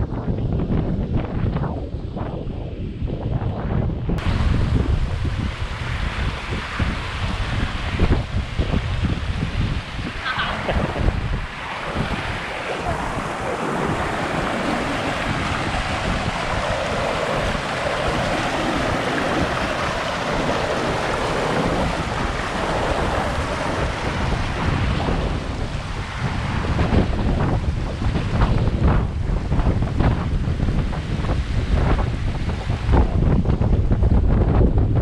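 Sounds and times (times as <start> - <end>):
wind buffeting microphone: 0.0 - 35.0
stream rushing over rocks: 4.2 - 28.7.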